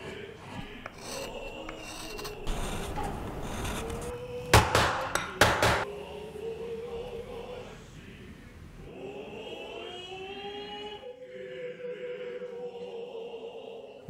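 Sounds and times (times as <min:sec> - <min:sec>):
chisel rasping on wood: 0:00.0 - 0:05.8
loud chisel strokes: 0:00.0 - 0:05.8.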